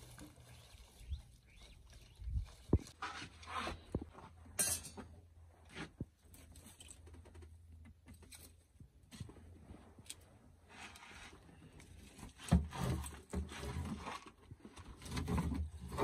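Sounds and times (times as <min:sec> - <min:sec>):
twigs knocking and rustling: 0:00.0 - 0:03.6, 0:06.2 - 0:09.4.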